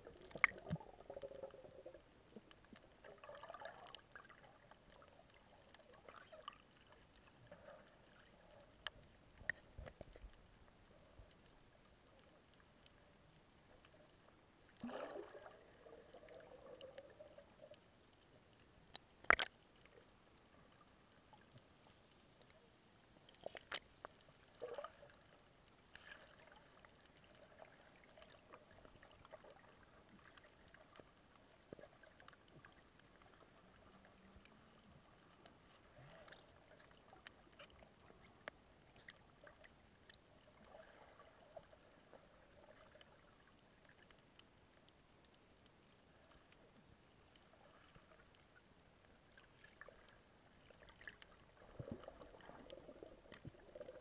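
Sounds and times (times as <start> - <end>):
faint ticks: 0.0 - 15.0, 15.9 - 54.0
muffled underwater ambience: 0.0 - 54.0
sharp underwater clicks: 0.2 - 1.5, 18.9 - 19.7.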